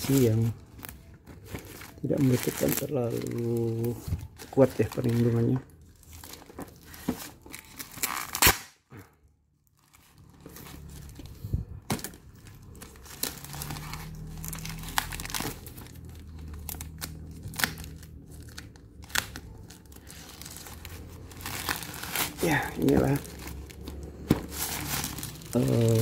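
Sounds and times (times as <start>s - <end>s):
plastic crinkling and rustling: 0.0s - 8.5s, 9.6s - 26.0s
plastic bag slit and torn open: 7.8s - 8.8s.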